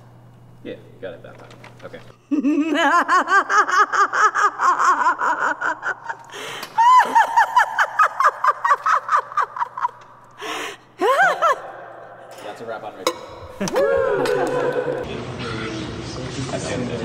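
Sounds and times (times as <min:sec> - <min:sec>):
person cackling with laughter: 0:02.3 - 0:10.4, 0:11.0 - 0:11.9.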